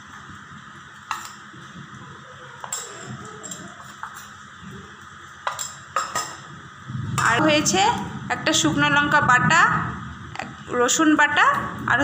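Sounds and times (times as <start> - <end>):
low background hum: 0.0 - 12.0
kitchenware clinking: 1.1 - 1.4, 2.6 - 4.4, 5.4 - 6.5.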